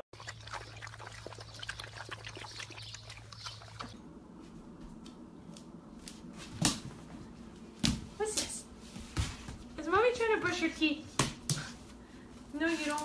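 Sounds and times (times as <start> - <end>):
puppies lapping water: 0.0 - 4.0.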